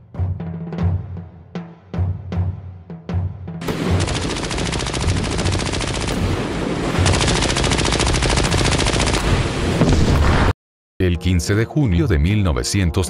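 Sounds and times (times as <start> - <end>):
rapid machine-gun fire: 3.6 - 9.7.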